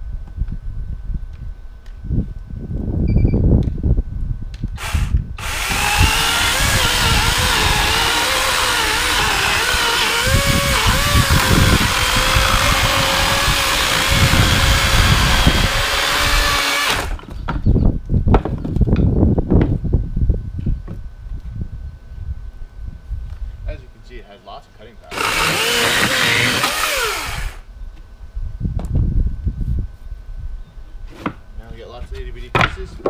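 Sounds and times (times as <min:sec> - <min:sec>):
electric chainsaw cutting wood: 0:04.8 - 0:17.3, 0:25.1 - 0:27.7.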